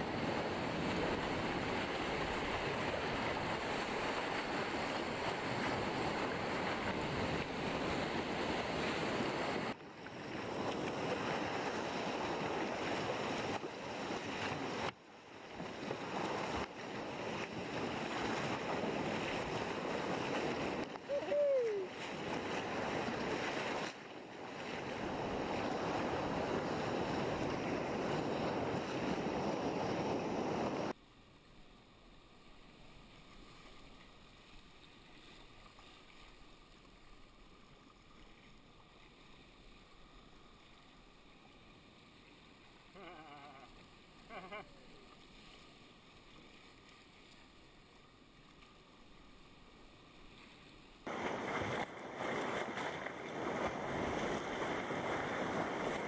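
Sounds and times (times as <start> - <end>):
choppy sea washing: 0.0 - 31.0, 42.2 - 48.0, 50.6 - 56.0
turbulent white water rushing: 15.8 - 30.9, 51.1 - 56.0
faint calls: 43.0 - 45.0.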